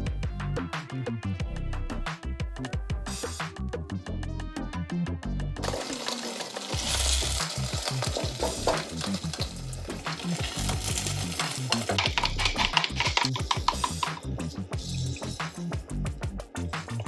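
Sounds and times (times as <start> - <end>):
pancake sizzling in frying pan: 5.6 - 12.0
quick clicks and scrapes: 11.7 - 14.3.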